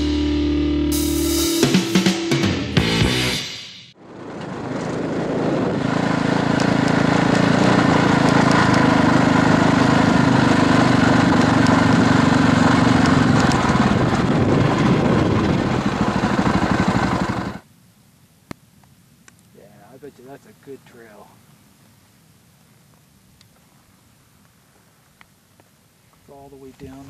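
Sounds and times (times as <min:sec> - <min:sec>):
motorcycle engine running: 0:00.0 - 0:17.6.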